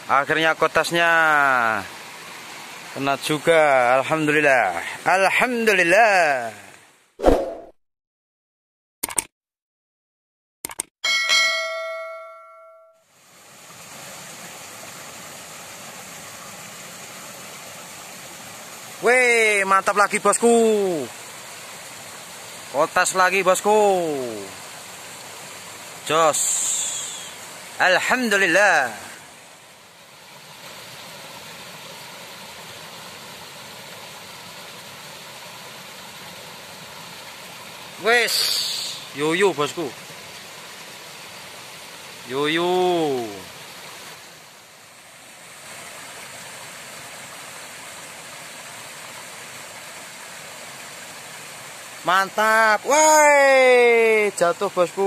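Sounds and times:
steady outdoor hiss: 0.0 - 7.2, 11.3 - 55.0
quick clicks: 9.0 - 9.3, 10.6 - 10.9
bell ding: 11.0 - 13.0.

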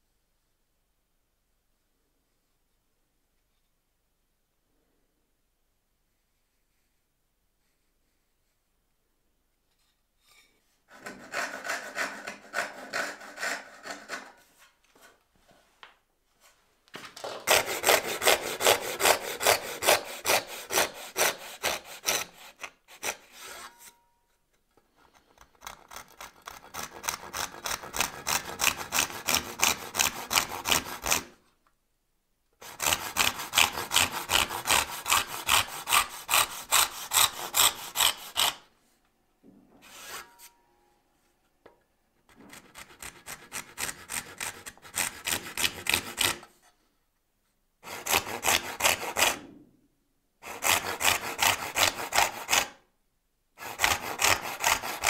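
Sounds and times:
hand saw cutting wood: 10.9 - 14.5, 17.3 - 24.0, 25.0 - 31.4, 32.6 - 38.7, 39.8 - 40.5, 42.3 - 46.7, 47.8 - 49.5, 50.4 - 52.8, 53.6 - 55.0.

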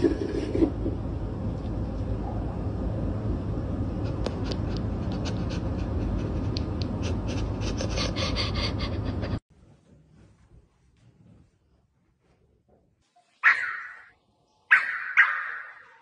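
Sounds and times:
steady low rumble: 0.7 - 9.4.

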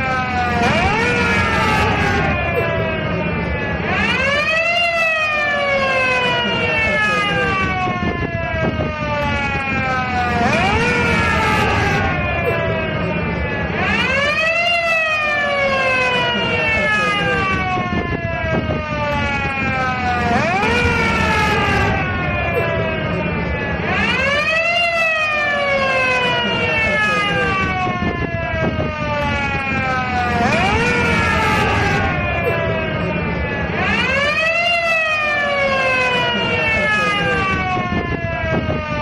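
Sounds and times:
ambulance siren: 0.0 - 39.0.

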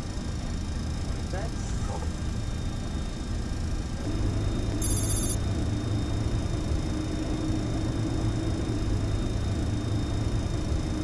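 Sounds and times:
aircraft cockpit hum: 0.0 - 11.0
faint steady tone: 0.0 - 11.0
high-pitched electronic burst: 4.8 - 5.4.

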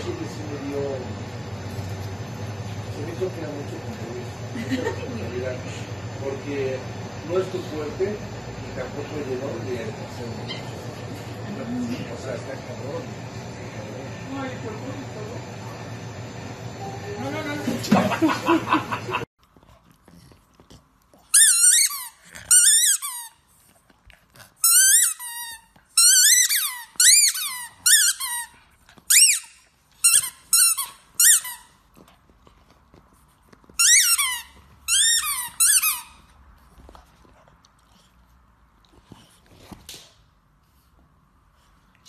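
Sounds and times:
squeaky dog toy squeaking: 21.3 - 23.4, 24.6 - 28.5, 29.1 - 31.8, 33.8 - 36.2.

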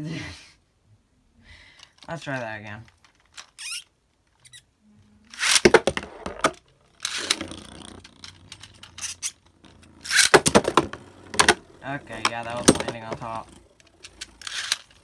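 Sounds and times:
spinning top launch clatter: 5.3 - 15.0
spinning top rattling: 5.3 - 15.0.

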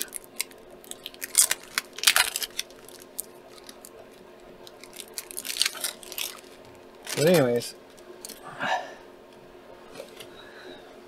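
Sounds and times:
packaging crackling and rustling: 0.0 - 8.4.

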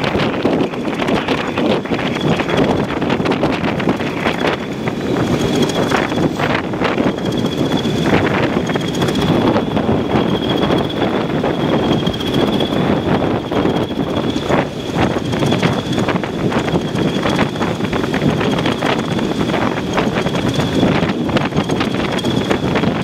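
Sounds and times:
diesel locomotive engine drone: 0.0 - 23.0
wind buffeting microphone: 0.0 - 23.0.

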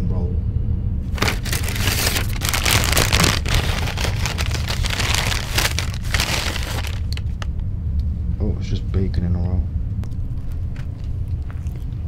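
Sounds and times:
steady low hum: 0.0 - 12.0
paper bags rustling: 1.1 - 7.5.

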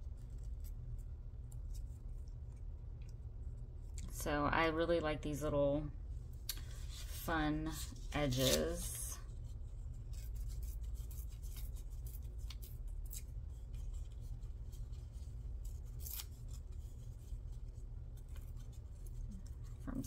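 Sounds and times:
steady low hum: 0.0 - 20.0
paper snipping and rustling: 6.6 - 9.0, 10.0 - 20.0.

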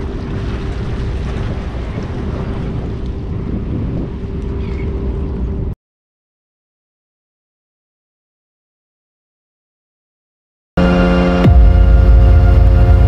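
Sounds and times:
wind buffeting microphone: 0.0 - 5.8.

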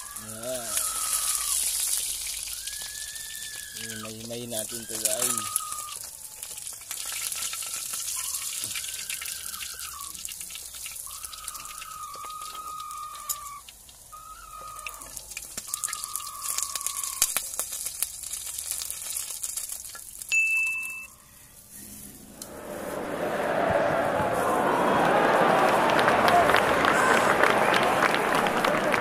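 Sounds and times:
oil sizzling in a wok: 0.8 - 3.8, 15.2 - 20.3
drawn-out tones: 21.5 - 28.7.

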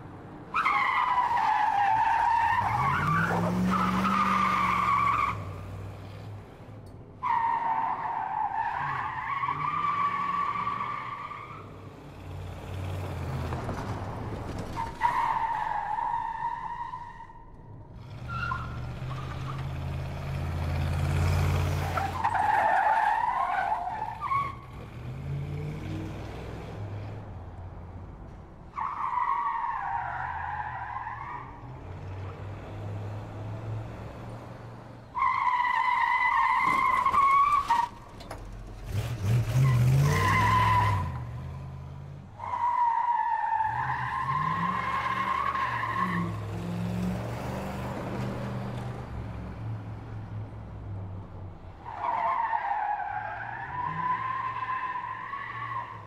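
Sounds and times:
car engine rumbling: 0.0 - 56.0
tyres squealing: 35.2 - 41.3.

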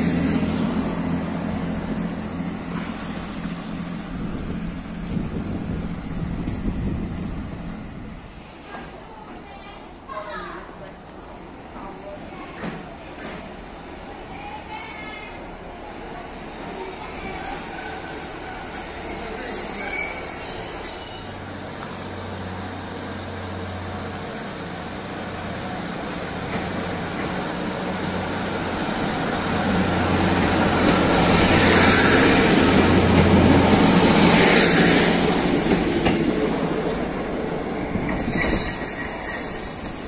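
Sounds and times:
diesel train engine humming: 0.0 - 8.6
train engines and wheels rushing: 0.0 - 40.0.

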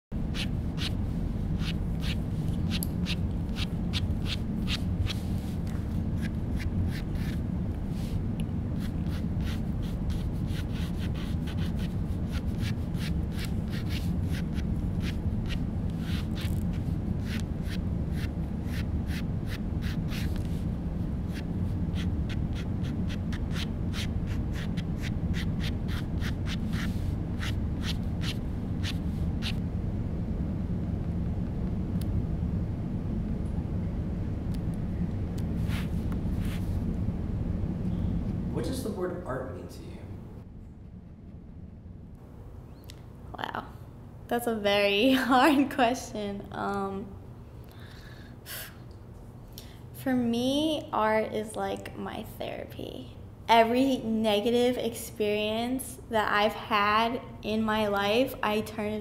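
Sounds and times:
low room hum: 0.1 - 59.0
pen scratching on paper: 0.3 - 1.0, 1.6 - 5.2, 6.2 - 7.4, 8.8 - 20.4, 21.3 - 29.6.

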